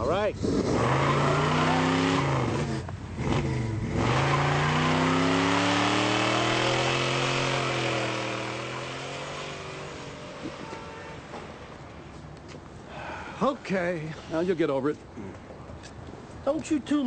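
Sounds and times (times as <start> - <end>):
car engine revving hard: 0.4 - 10.8.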